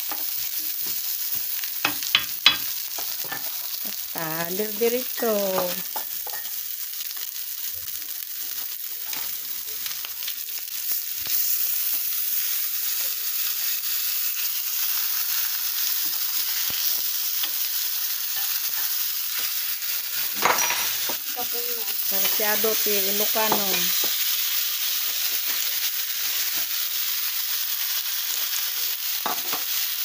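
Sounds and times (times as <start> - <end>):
fish sizzling in a pan: 0.0 - 30.0.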